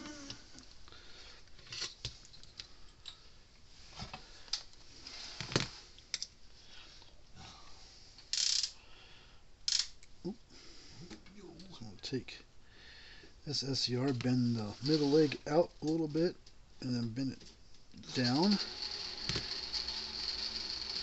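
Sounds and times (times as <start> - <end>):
scraping rustles: 14.0 - 15.7.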